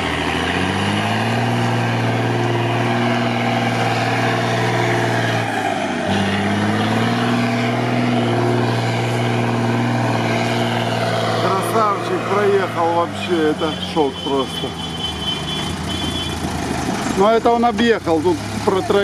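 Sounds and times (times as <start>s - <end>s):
diesel engine running under load: 0.0s - 19.0s.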